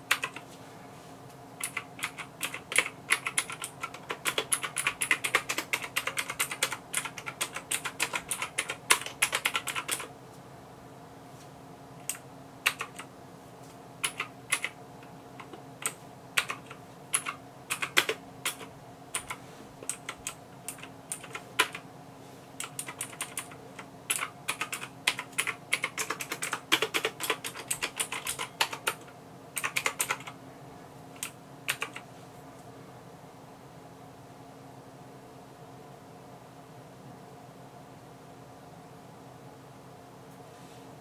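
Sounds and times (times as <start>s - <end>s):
faint steady hum: 0.0s - 41.0s
mechanical keyboard keystrokes: 0.1s - 0.4s, 1.6s - 10.1s, 12.0s - 13.1s, 14.0s - 14.8s, 15.4s - 21.8s, 22.6s - 29.0s, 29.6s - 30.4s, 31.2s - 32.0s.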